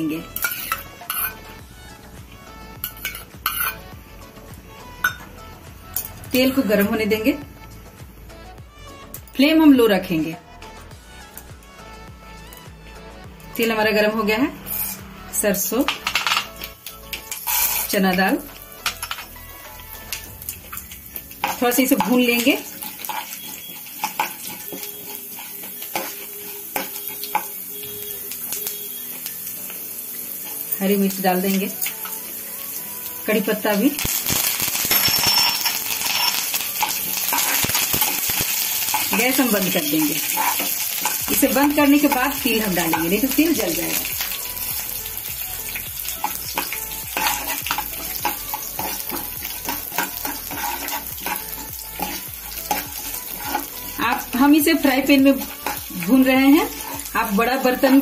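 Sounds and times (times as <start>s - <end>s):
oil sizzling: 0.0s - 9.4s, 13.5s - 58.0s
spoon clinking against pan: 0.4s - 1.4s, 2.8s - 3.8s, 5.0s - 5.3s, 18.8s - 19.3s, 21.4s - 27.9s, 34.3s - 38.2s, 46.2s - 54.3s.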